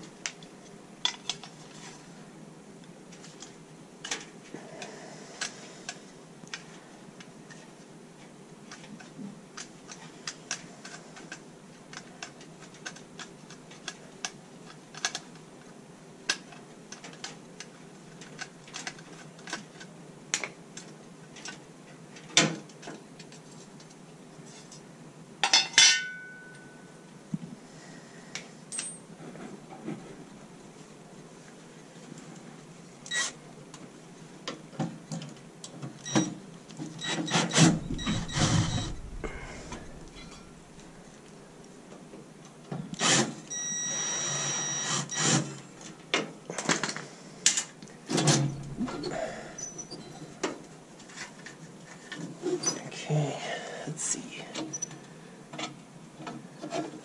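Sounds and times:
ringing metallic clang: 37.8 - 40.6.

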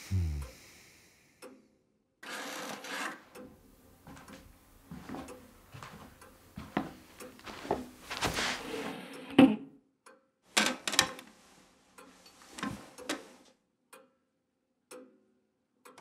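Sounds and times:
scraping and rubbing: 7.7 - 9.2.

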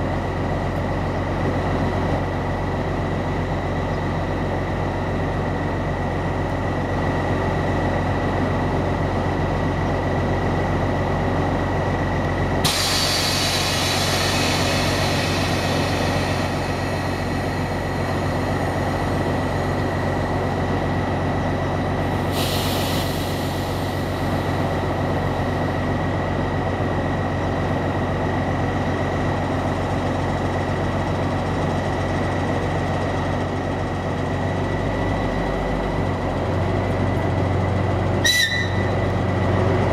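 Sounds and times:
diesel train engine drone: 0.0 - 39.9
compressed air hiss: 12.6 - 17.3, 22.2 - 24.6.

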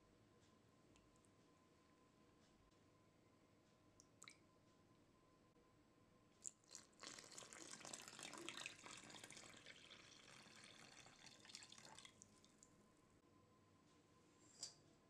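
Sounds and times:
liquid pouring into a bowl: 6.4 - 12.7.

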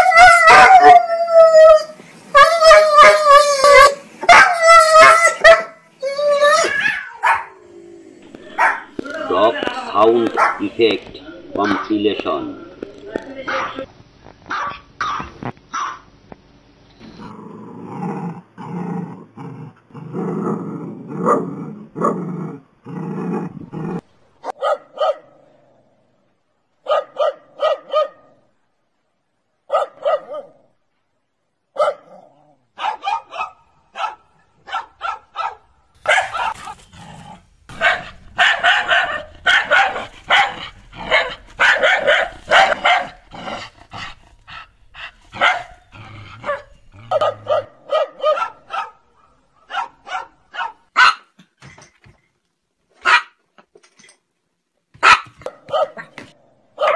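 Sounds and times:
dogs barking: 0.0 - 1.0, 2.9 - 3.3, 4.2 - 5.9, 6.7 - 7.6, 8.3 - 12.4, 14.5 - 16.1, 24.4 - 25.3, 26.8 - 28.3, 29.7 - 30.6, 31.8 - 32.1, 32.8 - 36.9, 37.7 - 51.3, 53.0 - 53.4, 55.0 - 56.9
dogs growling: 6.8 - 13.9, 36.0 - 47.9.

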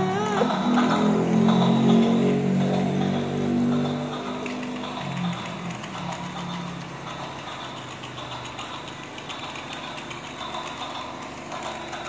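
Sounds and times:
toy train whirring rattle: 1.5 - 12.0.

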